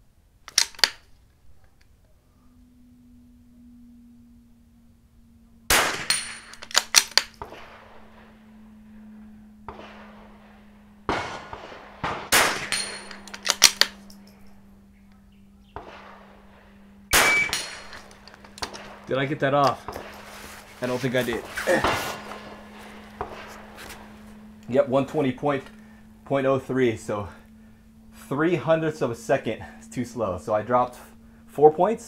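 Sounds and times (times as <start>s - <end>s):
steel targets ringing: 5.7s - 6.6s, 9.7s - 13.4s, 15.8s - 26.1s
rifle shots: 5.7s - 8.6s, 9.6s - 14.2s, 15.8s - 24.6s.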